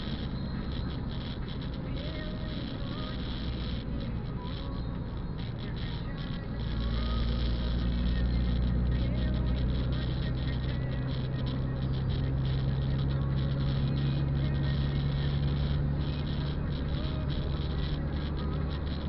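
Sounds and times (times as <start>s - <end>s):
car engine hum inside cabin: 0.0s - 19.0s.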